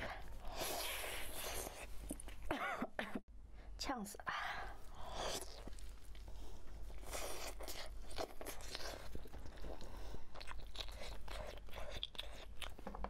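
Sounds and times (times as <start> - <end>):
person chewing with mouth clicks: 6.9 - 12.8.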